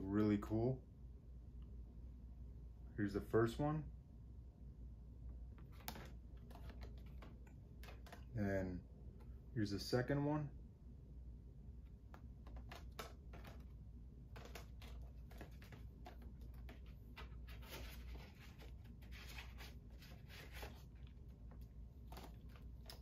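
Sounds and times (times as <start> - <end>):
low room hum: 0.0 - 23.0.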